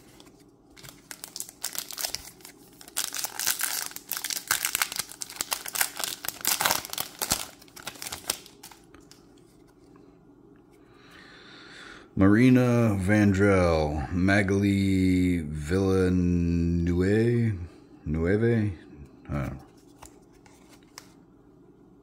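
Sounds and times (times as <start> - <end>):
plastic wrapper crinkling: 0.0 - 9.2.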